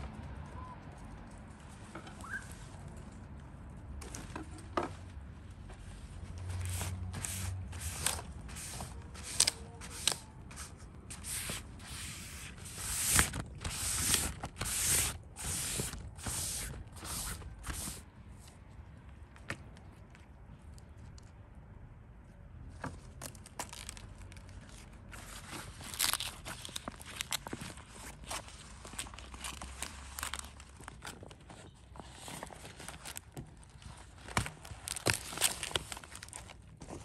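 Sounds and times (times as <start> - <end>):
cloth wiping wet leaves: 6.6 - 18.0.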